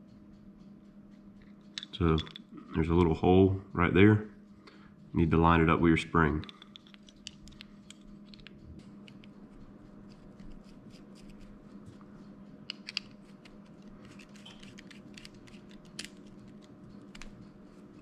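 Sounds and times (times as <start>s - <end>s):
low steady hum: 0.0s - 18.0s
small metallic clicks and scrapes: 6.4s - 11.7s, 12.7s - 18.0s.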